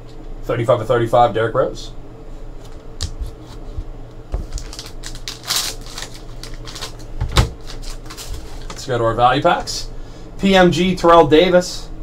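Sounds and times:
foil wrapper crinkling: 4.4 - 8.9.

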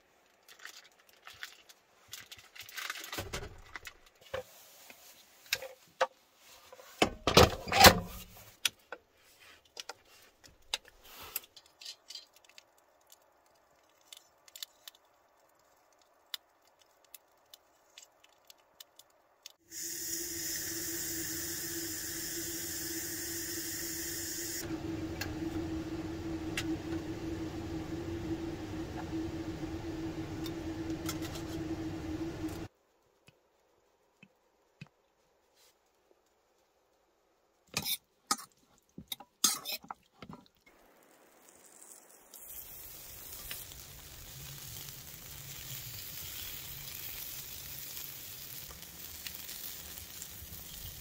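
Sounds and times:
food packaging rustling: 0.4 - 7.0
multi-cooker low hum: 19.2 - 32.7, 39.1 - 51.0
multi-cooker hiss: 19.4 - 32.7, 40.7 - 51.0.

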